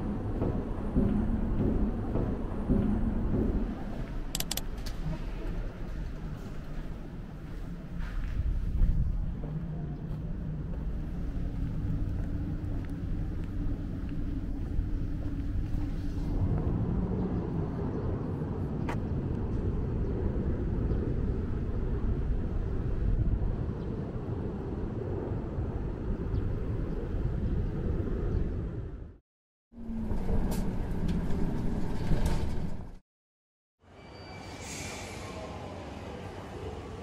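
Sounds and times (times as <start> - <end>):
steady low rumble: 0.0 - 29.2.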